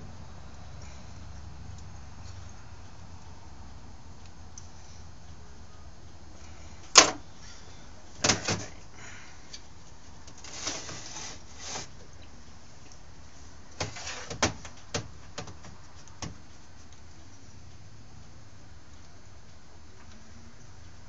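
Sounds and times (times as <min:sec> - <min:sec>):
soft scraping: 0:10.4 - 0:11.9.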